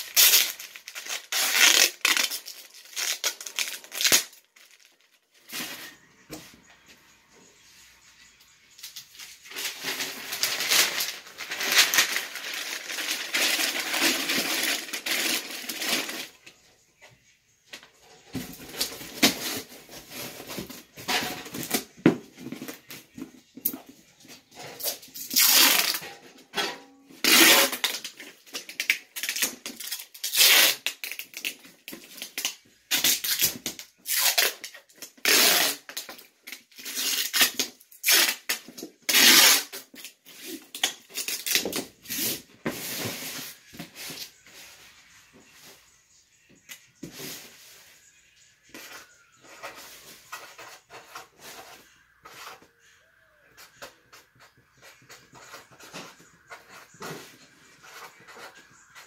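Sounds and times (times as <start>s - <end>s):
packing tape pulled off roll: 0.0s - 5.9s, 8.8s - 16.4s, 24.8s - 26.0s, 27.2s - 43.6s.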